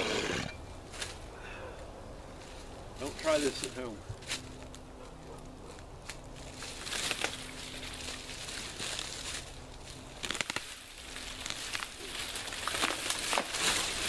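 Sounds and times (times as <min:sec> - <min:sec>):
dry branches rustling and cracking: 0:00.8 - 0:01.3, 0:02.2 - 0:14.0
branches snapping: 0:05.7 - 0:14.0.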